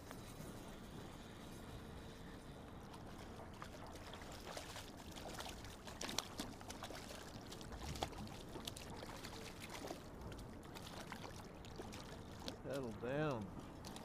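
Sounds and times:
fish thrashing and splashing: 3.4 - 13.0.

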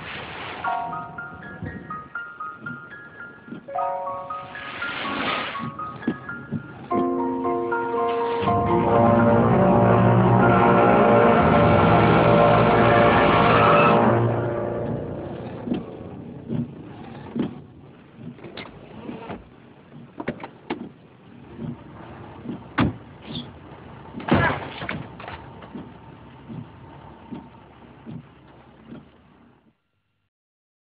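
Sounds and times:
car thumps and knocks: 15.6 - 23.5, 24.1 - 26.7, 27.3 - 29.2.

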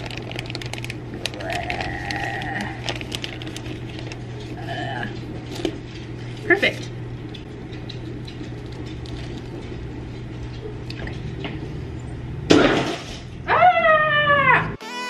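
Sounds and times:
plastic liner rustling: 0.0 - 4.6
high startled cry: 13.5 - 14.8.

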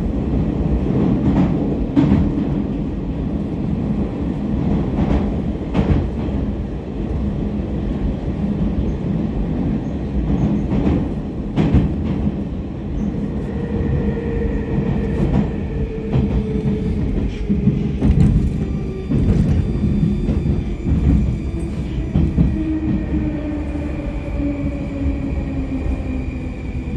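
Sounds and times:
train wheels rumbling on rail: 0.0 - 26.9.

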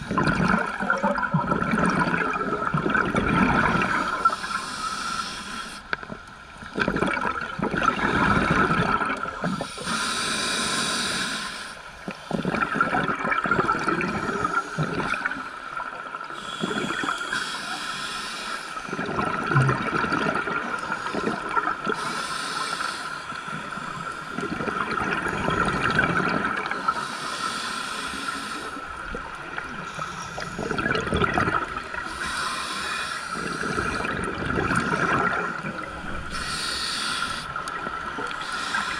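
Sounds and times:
exhaled bubbles rushing: 0.0 - 4.4, 6.6 - 9.6, 12.3 - 15.3, 18.9 - 22.0, 24.4 - 26.8, 29.1 - 32.1, 33.6 - 36.4
diver's regulator breathing underwater: 3.5 - 6.0, 7.9 - 12.9, 16.4 - 19.3, 20.1 - 28.8, 29.6 - 38.9.

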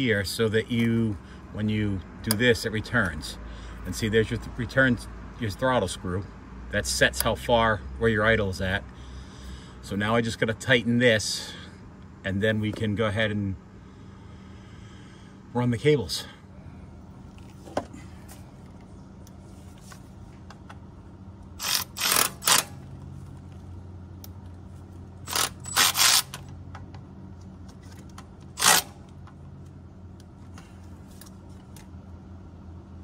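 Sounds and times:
faint steady hum: 0.0 - 33.0
cordless ratchet bursts: 21.6 - 22.8, 25.2 - 26.6, 28.4 - 29.1.

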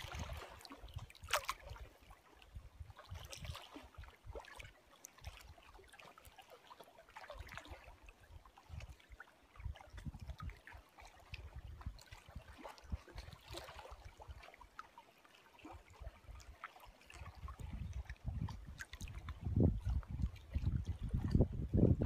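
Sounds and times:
lake waves lapping: 0.0 - 22.0
wind buffeting microphone: 9.6 - 10.6, 17.2 - 22.0.

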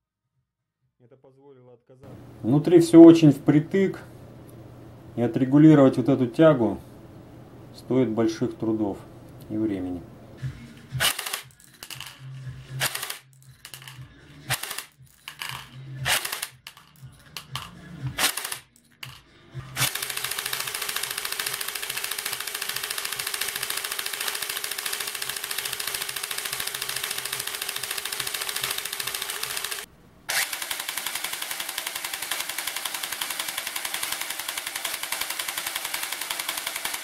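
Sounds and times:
electric gearmotor whirring: 11.0 - 13.9, 14.5 - 14.9, 16.0 - 37.0.

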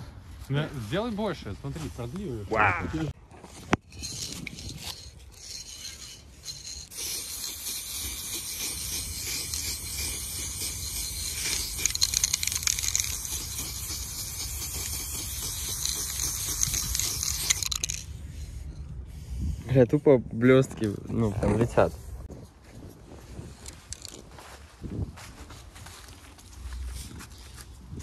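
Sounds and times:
spray paint can hissing: 3.9 - 19.3.

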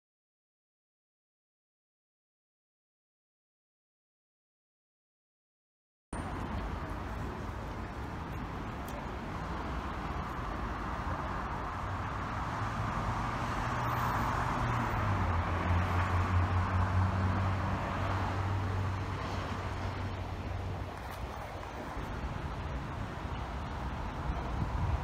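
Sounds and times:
vehicle engine hum and tyre noise: 6.2 - 25.0.

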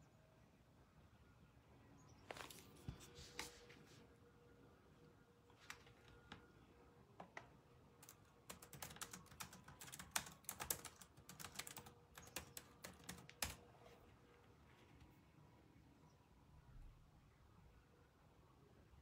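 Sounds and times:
keyboard typing clicks: 8.0 - 13.6.

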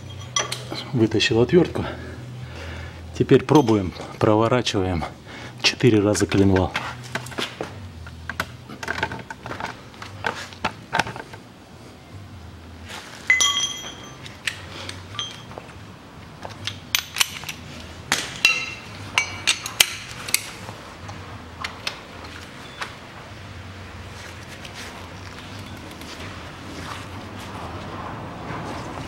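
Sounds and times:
metal hand tools clinking: 0.0 - 0.8, 3.5 - 4.2, 13.3 - 15.6, 16.6 - 17.7, 18.4 - 20.5
metallic ringing: 0.0 - 1.0, 13.3 - 14.5, 15.1 - 15.6, 18.4 - 20.1.

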